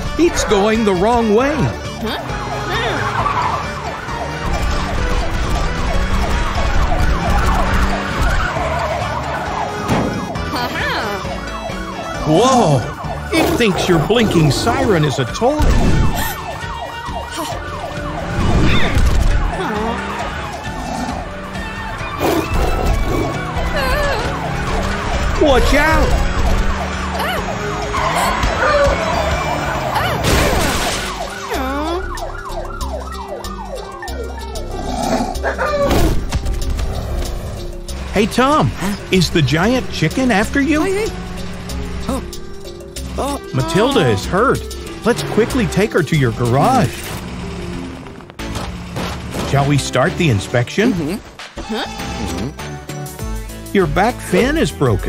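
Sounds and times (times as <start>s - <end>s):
cartoon police siren: 1.6s - 36.0s, 42.1s - 44.9s.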